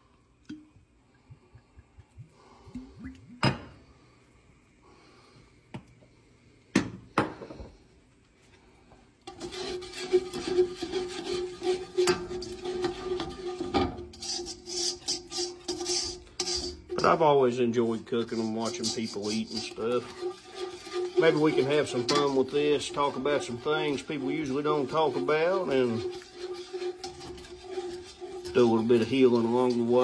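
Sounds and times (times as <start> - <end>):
spatula scraping a steel pot: 9.2 - 30.0.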